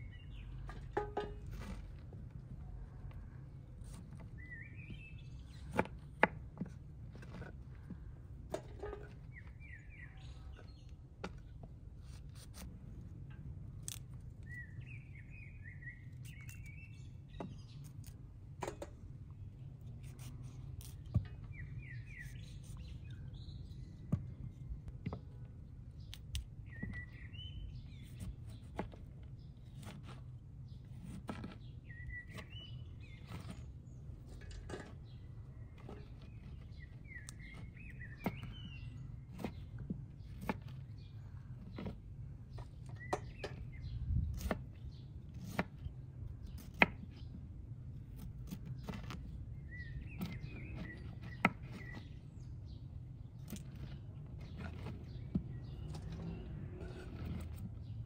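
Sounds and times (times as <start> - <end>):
bird chirping: 0.0 - 0.9, 3.6 - 5.9, 8.8 - 11.6, 14.4 - 18.2, 19.4 - 29.9, 30.6 - 45.6, 48.4 - 58.0
knife cutting cauliflower: 11.9 - 12.9, 13.7 - 14.6, 16.0 - 18.3, 19.9 - 23.2, 27.9 - 34.4, 35.8 - 41.0, 44.2 - 47.1, 48.0 - 52.2.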